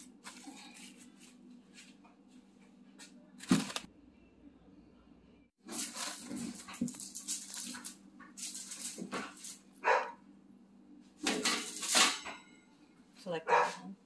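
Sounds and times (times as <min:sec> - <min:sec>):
cling wrap crinkling: 0:03.4 - 0:03.9, 0:05.6 - 0:09.7
dog barking: 0:09.8 - 0:10.2, 0:13.4 - 0:13.9.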